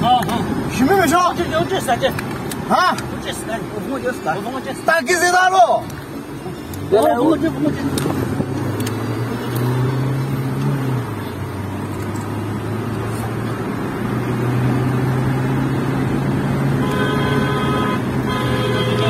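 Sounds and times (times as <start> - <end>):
car engine and road noise: 0.0 - 19.0
car horn: 16.7 - 19.0.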